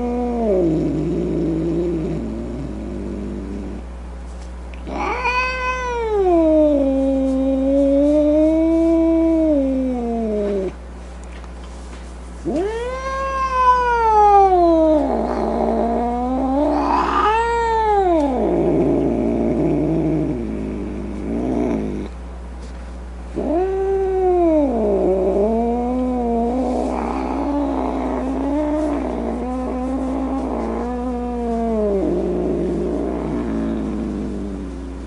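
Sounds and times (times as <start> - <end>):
cat yowling: 4.9 - 7.0, 12.5 - 18.8, 23.4 - 32.2.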